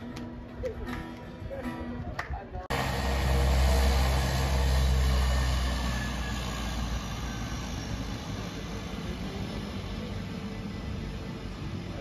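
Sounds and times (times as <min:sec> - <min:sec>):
turboprop engines running: 0:02.7 - 0:12.0.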